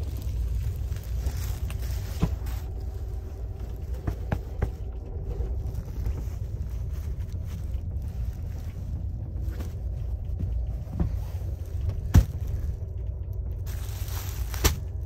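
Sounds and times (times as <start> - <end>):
train car low rumble: 0.0 - 15.0.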